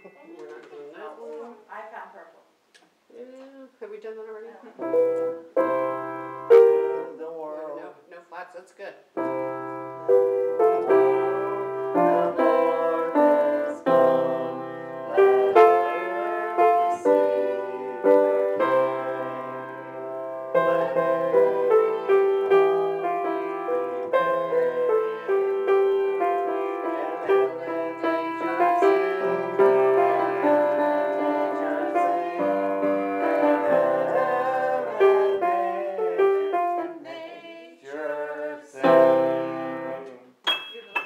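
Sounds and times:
piano playing chords: 0:04.8 - 0:07.3, 0:09.2 - 0:37.0.

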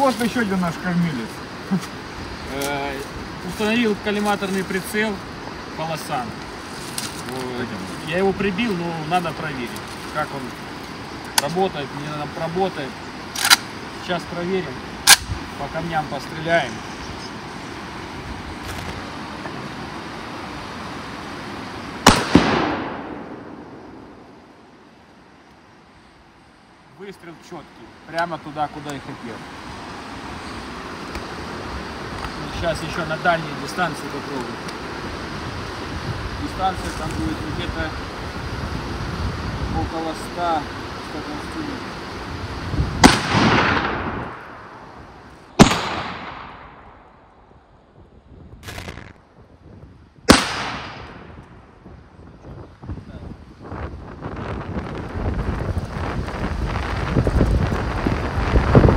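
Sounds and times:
fast river rushing: 0:07.3 - 0:22.6, 0:26.2 - 0:43.0
rifle shot: 0:13.3 - 0:13.7, 0:15.0 - 0:15.3, 0:22.0 - 0:24.0, 0:43.0 - 0:44.7, 0:45.6 - 0:47.0, 0:50.3 - 0:51.3.

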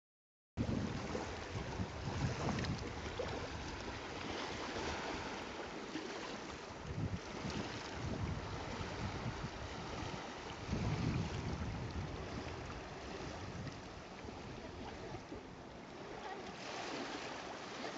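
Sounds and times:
wind buffeting microphone: 0:00.6 - 0:05.4, 0:06.4 - 0:15.7
small waves on rocky shore: 0:00.6 - 0:17.9.

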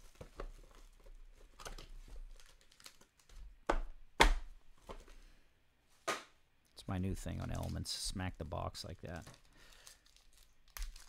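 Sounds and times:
cellophane crinkling and tearing: 0:00.0 - 0:03.5, 0:07.3 - 0:08.0, 0:09.0 - 0:11.0.

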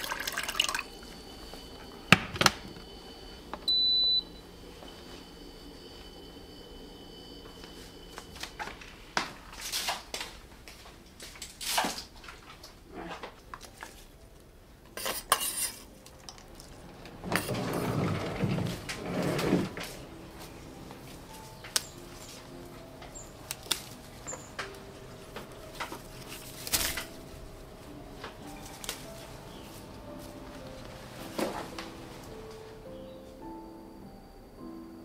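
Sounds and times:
dishes and utensils clinking: 0:14.9 - 0:17.9.

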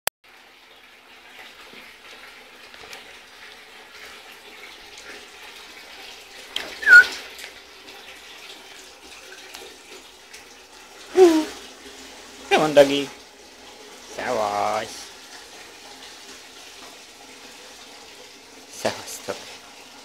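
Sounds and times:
puppy yelping: 0:06.8 - 0:07.1.

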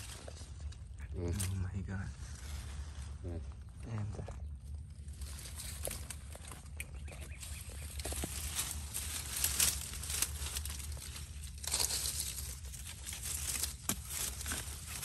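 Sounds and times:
plants tearing: 0:00.0 - 0:01.8, 0:05.1 - 0:15.0
dry grass and leaves rustling: 0:00.0 - 0:15.0.

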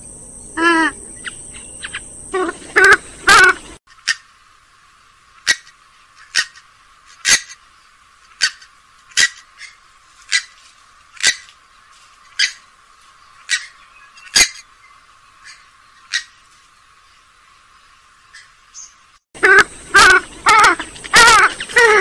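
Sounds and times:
bird short sharp calls: 0:18.3 - 0:22.0.

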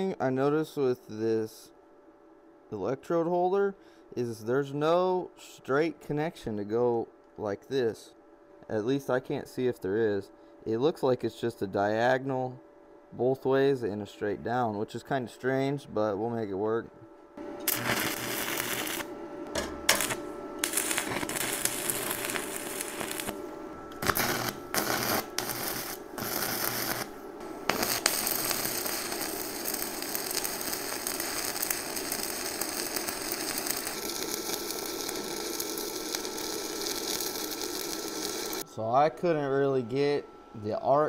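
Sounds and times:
welding arc crackling: 0:17.4 - 0:38.6.

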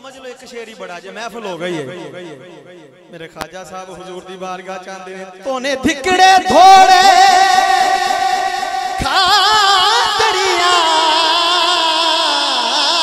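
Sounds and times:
devotional singing held notes: 0:06.1 - 0:13.0.

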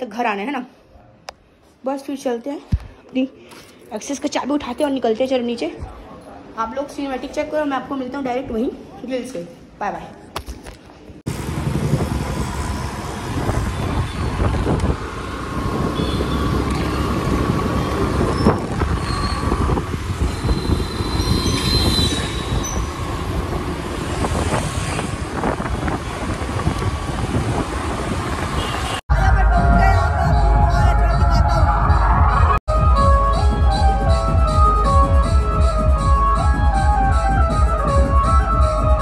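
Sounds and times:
scooter road noise: 0:11.3 - 0:29.0
low wind rumble: 0:11.3 - 0:32.6.

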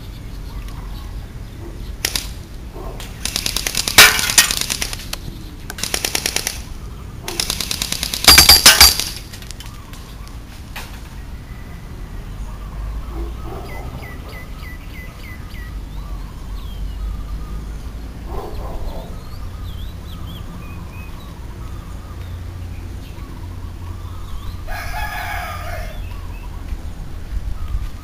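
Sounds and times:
small birds chirping: 0:00.0 - 0:28.0
rooster crowing: 0:24.6 - 0:26.2.

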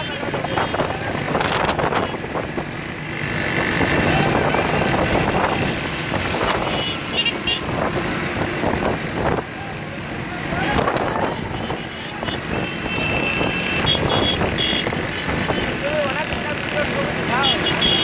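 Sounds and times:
voices: 0:00.0 - 0:02.3, 0:03.7 - 0:05.7, 0:09.2 - 0:18.0
motorcycle engines running: 0:00.0 - 0:18.0.

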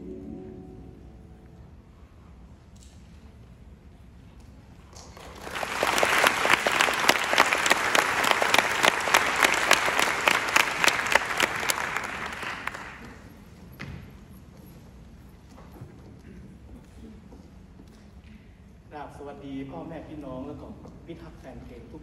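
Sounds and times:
audience applauding: 0:05.0 - 0:13.2.

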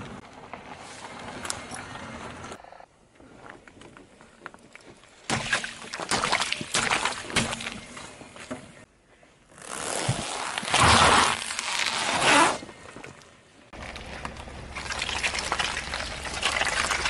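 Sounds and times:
tyre squeezing a ball: 0:09.6 - 0:12.7
plastic crackling under tyre: 0:09.6 - 0:17.0.

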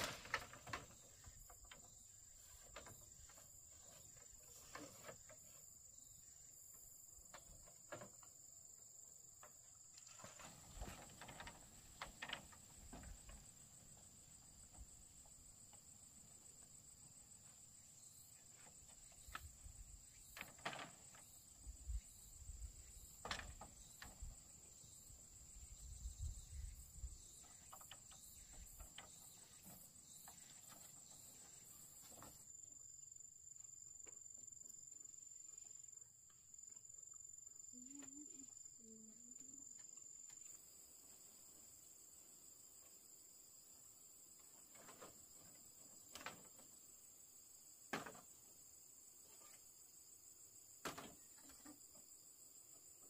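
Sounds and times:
crickets chirring: 0:00.0 - 0:53.0.

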